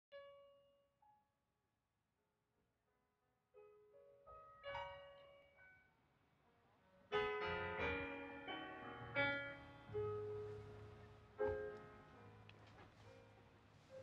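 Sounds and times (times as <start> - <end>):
quiet piano music: 3.5 - 14.0.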